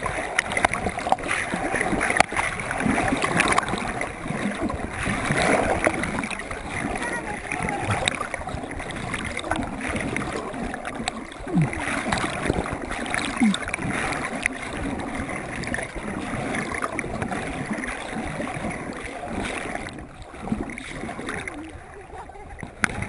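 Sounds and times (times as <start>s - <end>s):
muddy water sloshing and splashing: 0.0s - 23.0s.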